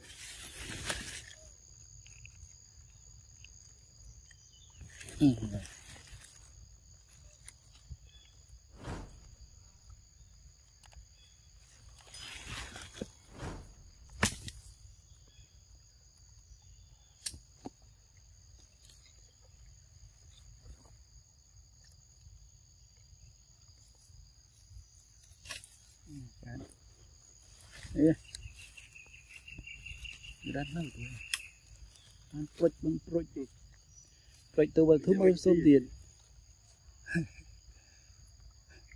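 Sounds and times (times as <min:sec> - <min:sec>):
high-pitched insect drone: 0:22.0 - 0:38.9.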